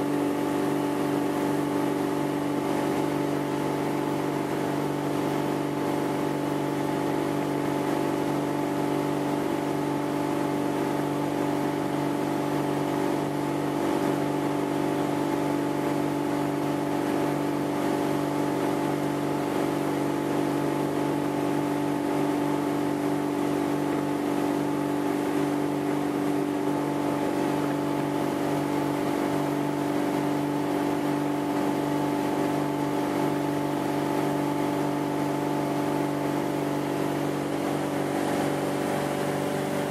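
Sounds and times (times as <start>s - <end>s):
boat engine drone: 0.0s - 39.9s
water rushing: 34.5s - 39.9s.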